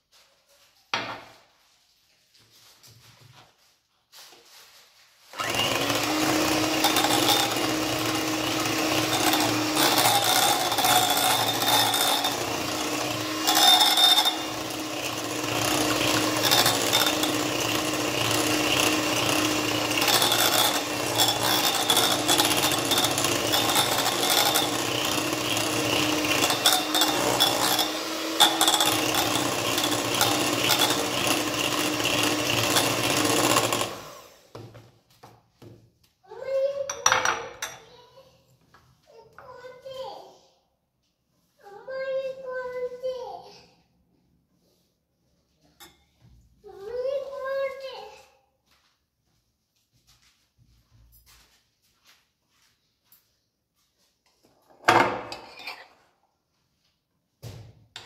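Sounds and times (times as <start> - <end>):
electric hand mixer whipping cream: 5.4 - 34.7.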